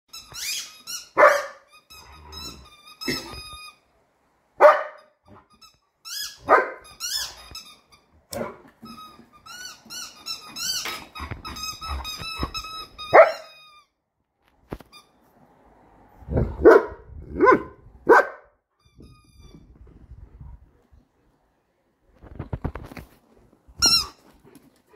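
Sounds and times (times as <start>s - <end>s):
squeaky toy squeaking: 0.1s - 3.8s, 5.0s - 8.1s, 8.8s - 14.0s, 18.8s - 19.7s, 23.8s - 24.3s
dog barking: 1.2s - 1.6s, 4.6s - 5.0s, 6.4s - 6.8s, 13.1s - 13.5s, 16.4s - 18.5s.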